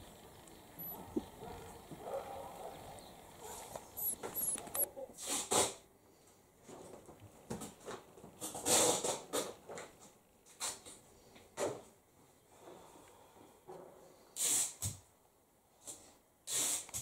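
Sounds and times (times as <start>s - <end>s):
bird chirping: 0.3s - 4.9s.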